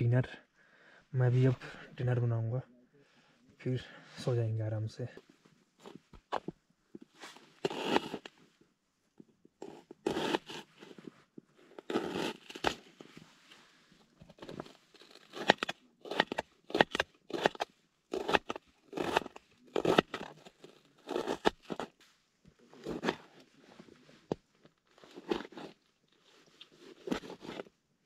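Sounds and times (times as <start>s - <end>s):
knife crunching through onion: 7.3s - 8.3s, 9.6s - 10.7s, 11.8s - 12.9s, 14.2s - 22.0s, 22.8s - 23.3s, 25.0s - 25.8s, 26.9s - 27.7s.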